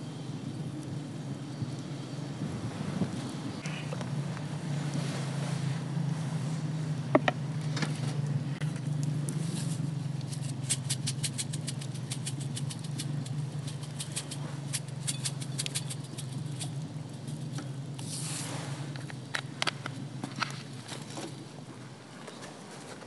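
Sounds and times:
steady low hum: 0.0s - 23.0s
spice shaker rattling: 9.7s - 17.6s.

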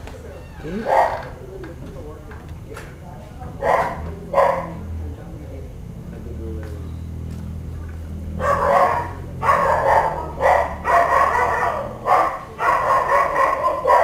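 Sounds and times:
dog barking: 0.7s - 1.4s, 3.6s - 4.9s, 8.3s - 14.0s.

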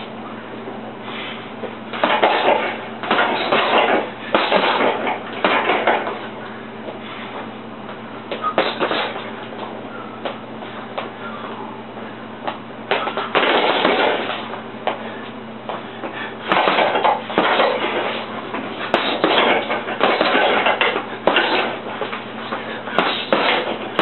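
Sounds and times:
low hum: 0.0s - 24.0s
gloves punching heavy bag: 2.0s - 6.2s, 8.4s - 9.3s, 12.9s - 14.5s, 16.4s - 24.0s.

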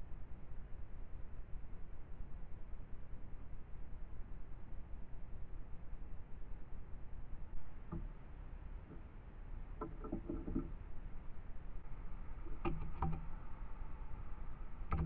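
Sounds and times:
bird pecking taps and knocks: 9.8s - 10.7s, 12.4s - 13.4s.

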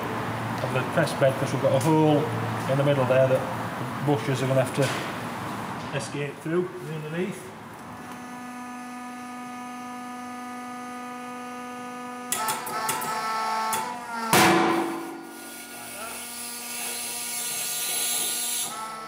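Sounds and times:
hydraulic pump humming: 4.9s - 19.0s
loud sharp crack: 14.3s - 15.1s.

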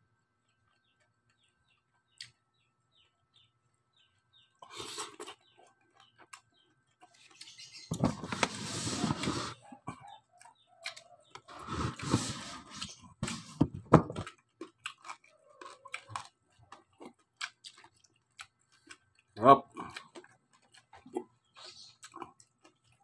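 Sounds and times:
chewing crispy pork crackling: 3.7s - 7.9s, 9.1s - 12.2s, 14.2s - 23.0s.

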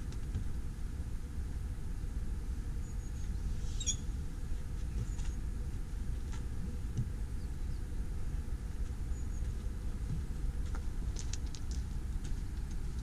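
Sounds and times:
wind rumble on microphone: 0.0s - 13.0s
faint high chirps: 2.8s - 4.1s.

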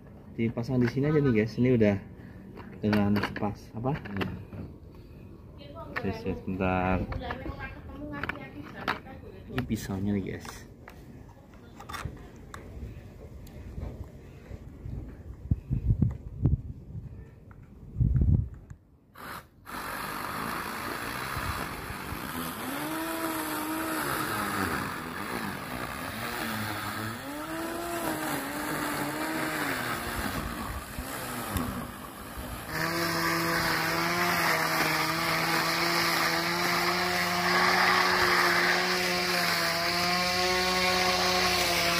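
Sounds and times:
grass trimmer cutting grass: 19.2s - 41.9s.

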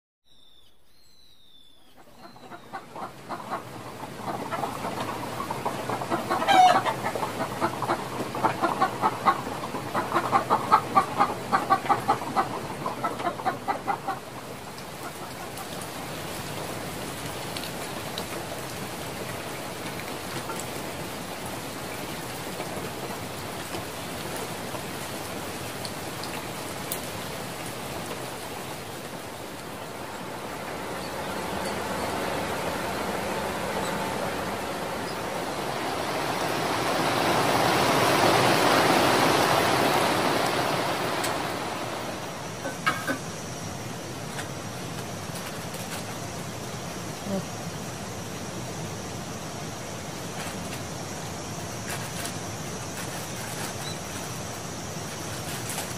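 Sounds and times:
rain hissing: 1.7s - 55.9s
hen clucking: 2.0s - 15.8s.

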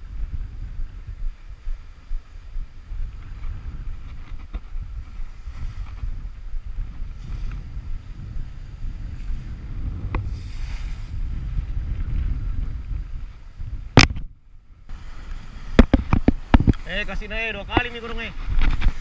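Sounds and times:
wind buffeting microphone: 0.0s - 19.0s
surf washing against rocks: 14.9s - 19.0s.

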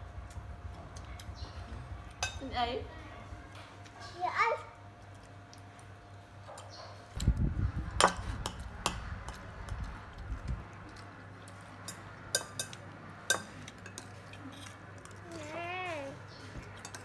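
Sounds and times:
spoons clinking on bowls: 2.1s - 2.5s, 11.5s - 15.2s, 16.7s - 17.0s.

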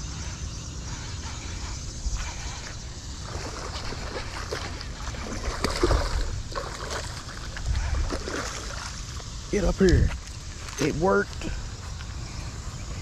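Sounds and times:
wind rumbling on microphone: 0.0s - 13.0s
fish splashing in water: 2.2s - 9.4s.

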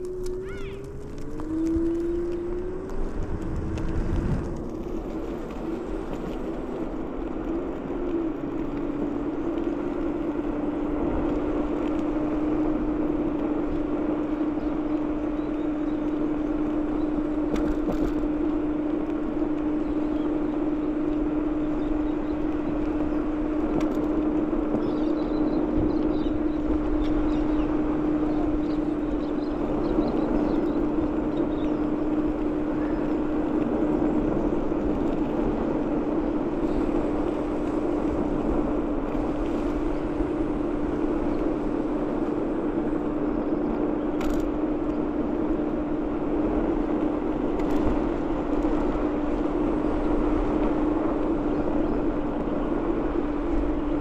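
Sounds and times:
low rumble: 0.0s - 9.5s
electric scooter motor whining: 0.0s - 54.0s
tyre noise on road: 0.0s - 54.0s
wind: 0.0s - 54.0s.

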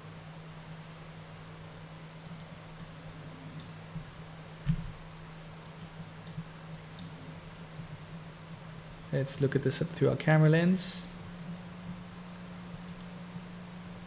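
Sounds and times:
steady low hum: 0.0s - 14.0s
computer mouse clicks: 2.2s - 2.9s, 5.6s - 7.2s, 12.8s - 13.2s
keyboard clicks: 2.2s - 2.9s, 5.6s - 6.4s, 12.9s - 13.2s.

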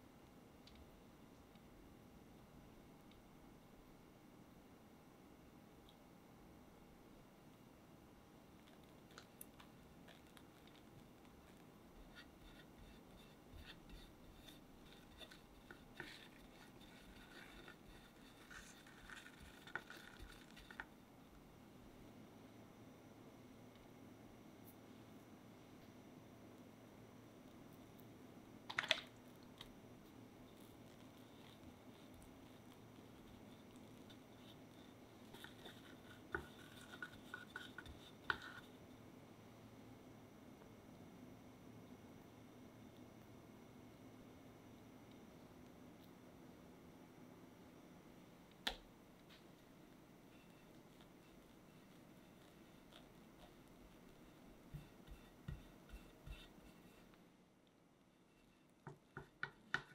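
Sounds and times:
spatula scraping cream on cake: 8.7s - 21.0s, 30.4s - 38.8s, 50.3s - 57.2s.

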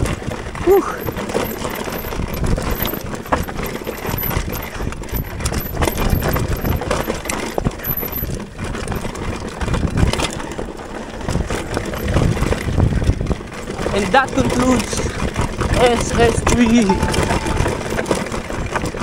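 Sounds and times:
bike tyres on dirt trail: 0.0s - 16.1s
bike chain rattling and clicking: 0.0s - 16.4s.

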